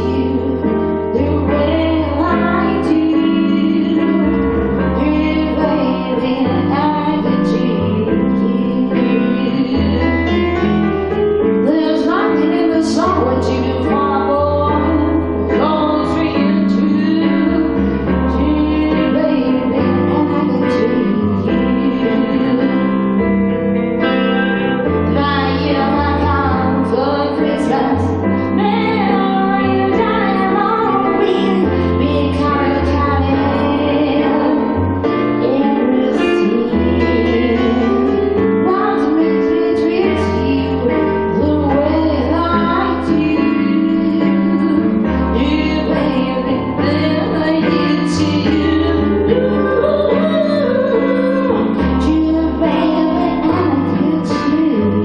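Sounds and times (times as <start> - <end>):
woman singing slow song: 0.0 - 10.8, 11.6 - 23.0, 24.4 - 55.0
deep bass line: 0.0 - 55.0
electric keyboard chords: 0.0 - 55.0.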